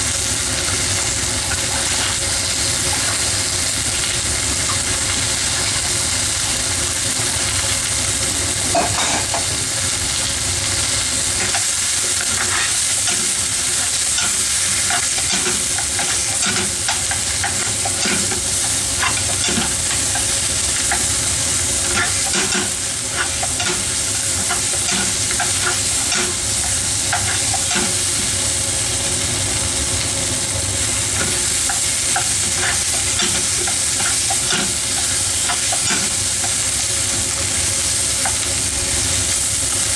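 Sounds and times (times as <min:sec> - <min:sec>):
food sizzling in a frying pan: 0:00.0 - 0:39.9.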